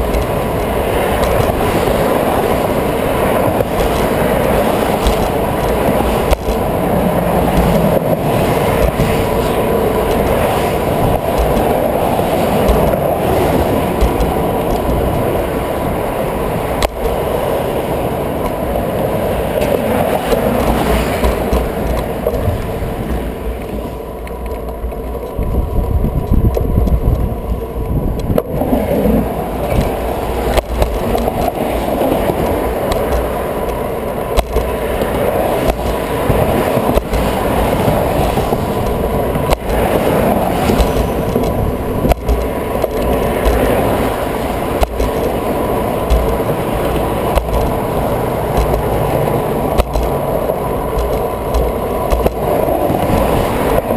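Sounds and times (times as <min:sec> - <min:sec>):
bike knocking over bumps: 0:00.0 - 0:16.0, 0:19.6 - 0:22.5, 0:29.6 - 0:53.4
bicycle tyres on wet pavement: 0:00.0 - 0:53.9
traffic: 0:00.0 - 0:53.9
wind rumble: 0:00.0 - 0:53.9.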